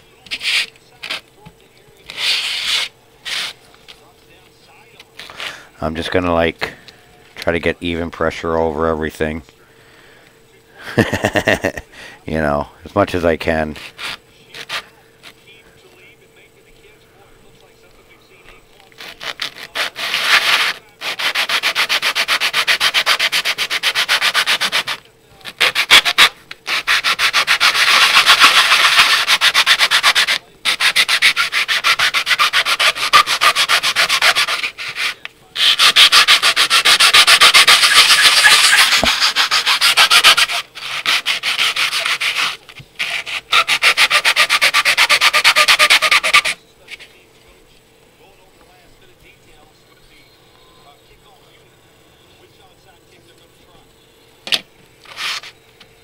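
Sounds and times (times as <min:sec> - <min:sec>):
plastic rubbed on sandpaper: 0:00.3 - 0:01.2, 0:02.1 - 0:04.0, 0:05.2 - 0:06.4, 0:13.0 - 0:15.4, 0:18.9 - 0:47.2, 0:55.0 - 0:55.6.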